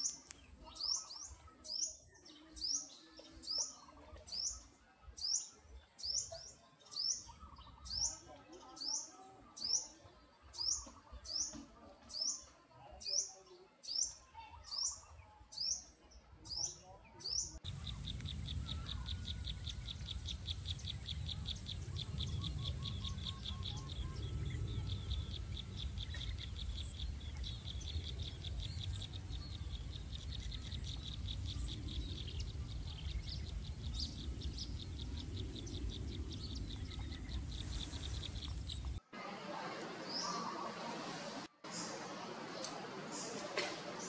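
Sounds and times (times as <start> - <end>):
high insect drone: 17.7 - 39.0
pulsing insect trill: 17.7 - 39.0.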